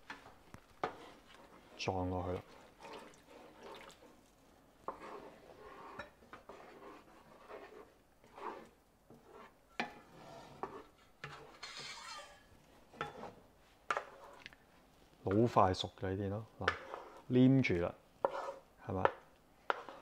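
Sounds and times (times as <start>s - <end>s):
spatula scraping frying pan: 0.1s - 14.5s, 16.6s - 17.4s, 18.2s - 18.7s, 19.6s - 20.0s.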